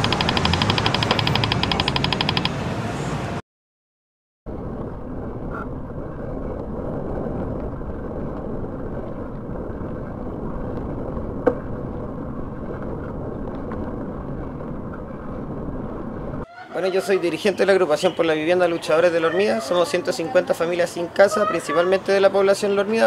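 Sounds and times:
sharp click: 0:00.0 - 0:02.6.

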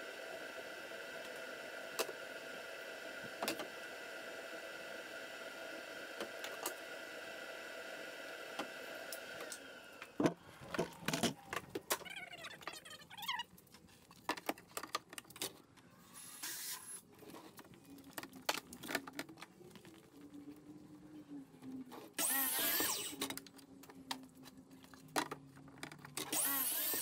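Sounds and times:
saw motor whine: 0:22.2 - 0:23.2, 0:26.3 - 0:27.0.

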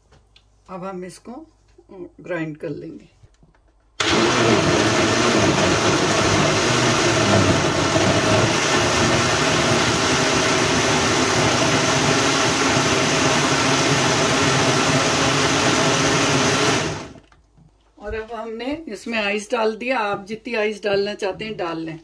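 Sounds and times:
blender running at high speed: 0:04.0 - 0:17.2.

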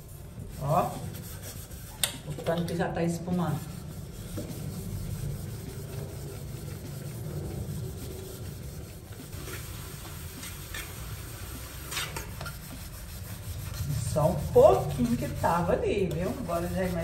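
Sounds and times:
steel wool scrubbing a pan: 0:00.0 - 0:17.0
low rumble: 0:03.1 - 0:09.4.

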